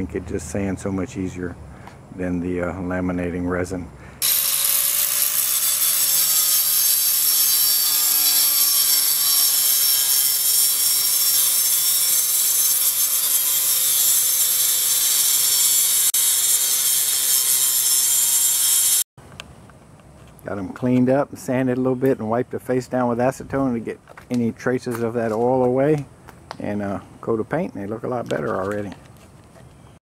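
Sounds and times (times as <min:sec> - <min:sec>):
angle grinder cutting fiberglass: 0:04.2 - 0:19.1.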